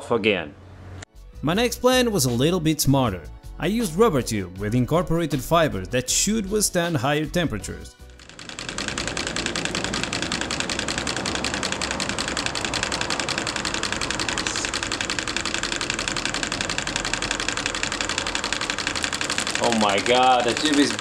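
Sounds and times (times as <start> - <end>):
stirling engine mechanical clatter: 8.2 - 21.0.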